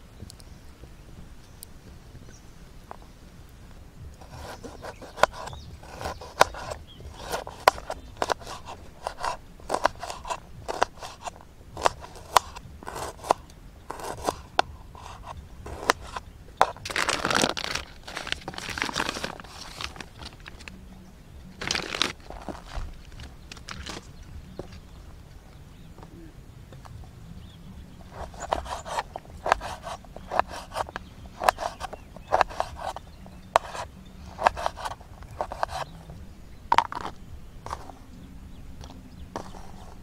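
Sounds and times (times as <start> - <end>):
knife scraping across board: 4.2 - 20.7, 28.1 - 33.0, 33.6 - 35.9
knife chopping on wooden board: 4.3 - 17.4.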